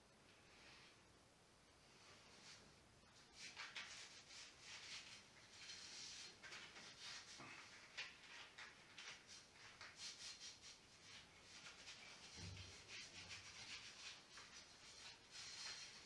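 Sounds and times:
hands rubbing and scratching: 3.2s - 16.0s.

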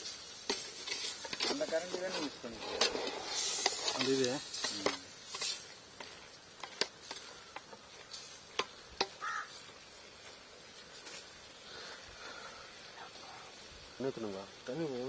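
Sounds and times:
metal ladle scraping a pot: 0.0s - 9.2s
faint sizzle: 0.0s - 15.0s.

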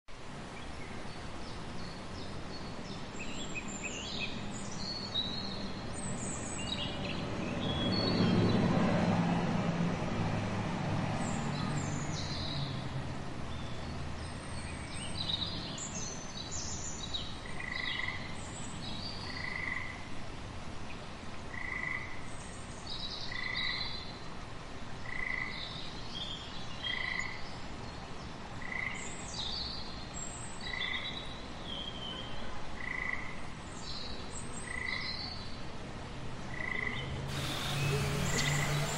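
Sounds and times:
low swell of sound: 37.3s - 38.9s.

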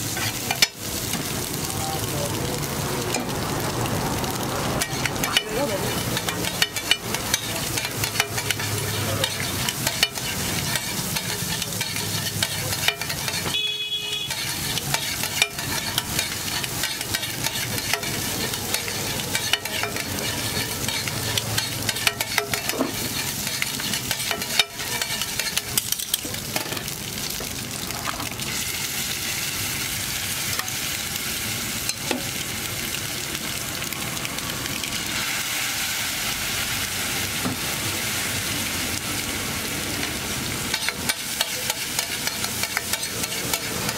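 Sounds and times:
metal spatula scraping griddle: 0.0s - 1.1s, 4.8s - 26.8s, 40.7s - 43.9s
frying sizzle: 0.0s - 43.9s.

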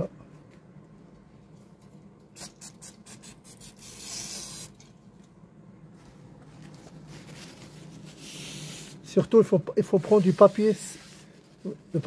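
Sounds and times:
paper towel wiping metal: 6.7s - 9.2s, 9.8s - 12.0s.

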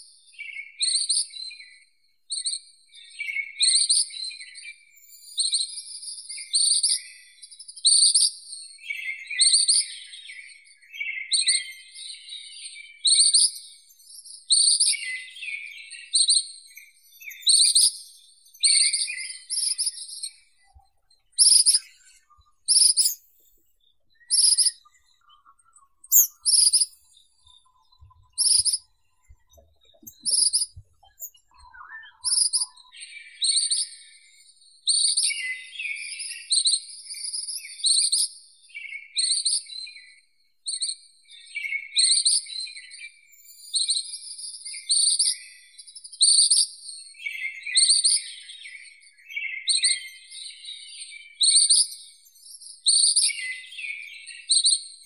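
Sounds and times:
bird calling with high trills: 18.7s - 33.8s.

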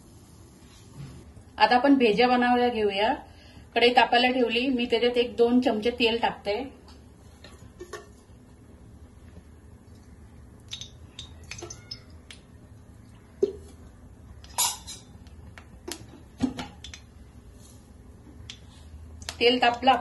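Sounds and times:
low steady hum: 0.0s - 20.0s
cookware clattering: 14.6s - 15.1s
kitchen utensils clinking: 14.6s - 15.1s.

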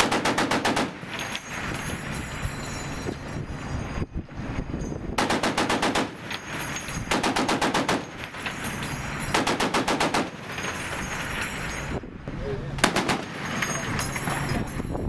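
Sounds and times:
heavy machine gun firing bursts: 0.0s - 1.2s, 5.2s - 6.3s, 7.1s - 8.2s, 9.2s - 10.6s, 12.8s - 13.5s.

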